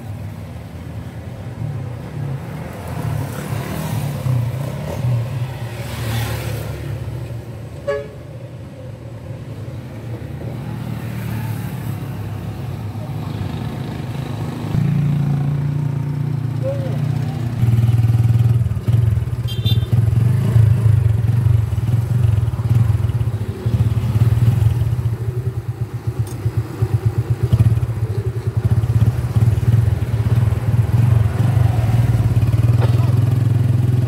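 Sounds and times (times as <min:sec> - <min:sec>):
motorcycle engine running: 0:17.4 - 0:34.0.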